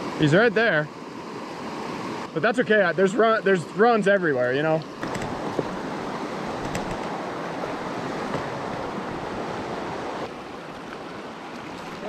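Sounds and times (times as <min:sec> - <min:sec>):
river rushing over rocks: 0:04.9 - 0:12.0.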